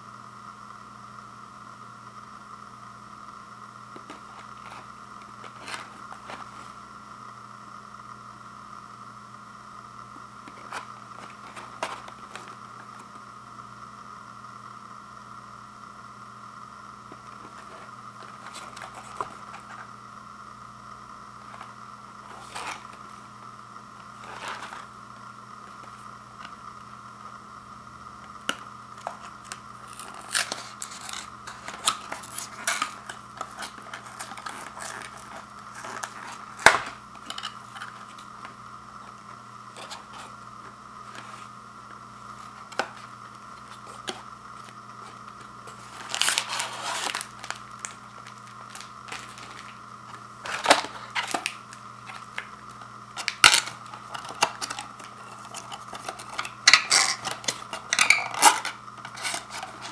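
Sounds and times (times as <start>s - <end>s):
faint steady hum: 0.0s - 59.9s
cardboard snaps: 35.8s - 37.0s.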